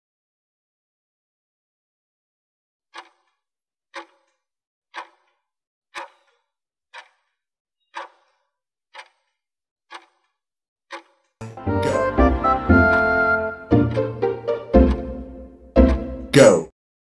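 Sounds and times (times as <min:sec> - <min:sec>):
timer ticking: 0:02.9 - 0:03.3, 0:03.9 - 0:05.3, 0:06.0 - 0:07.2, 0:07.9 - 0:09.3, 0:09.9 - 0:10.3, 0:10.9 - 0:16.3.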